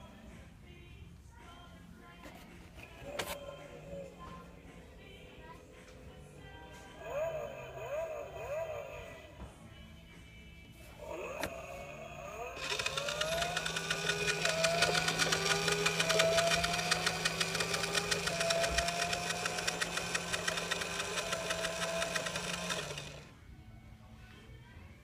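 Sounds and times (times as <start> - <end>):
toy car engine sound effect: 7.0 - 9.1, 11.1 - 23.3.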